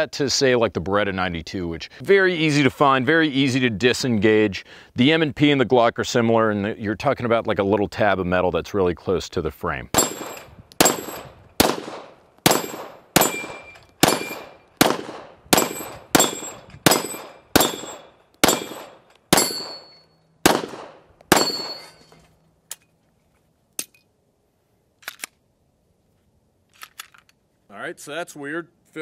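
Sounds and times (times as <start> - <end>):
pistol shots: 9.9 - 22.0
faint gun clicks: 25.0 - 25.4, 26.6 - 27.4.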